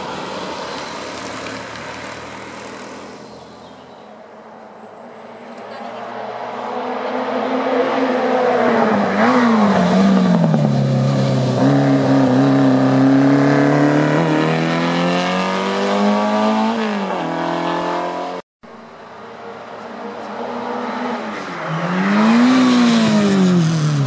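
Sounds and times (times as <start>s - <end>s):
racing car engine at full throttle: 5.5s - 18.4s.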